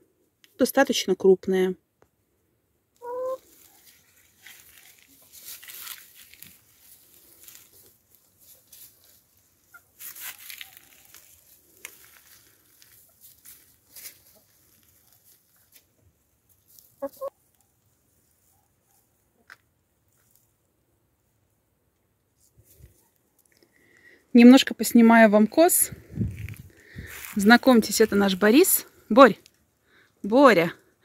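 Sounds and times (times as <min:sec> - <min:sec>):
hens clucking: 0:03.0 - 0:03.7, 0:17.0 - 0:17.4
scratching in dry straw: 0:03.2 - 0:19.2, 0:26.0 - 0:28.4.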